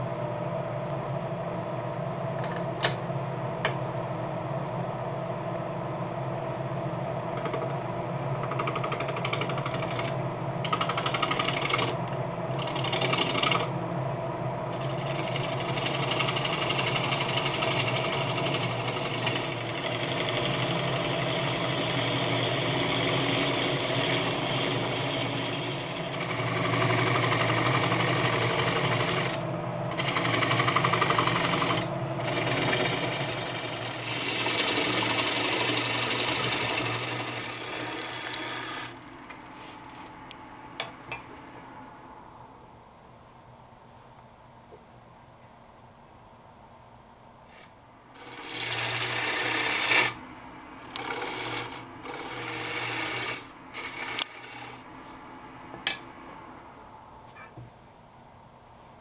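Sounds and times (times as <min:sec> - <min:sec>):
lathe motor hum: 0:04.6 - 0:41.9, 0:47.5 - 0:56.4.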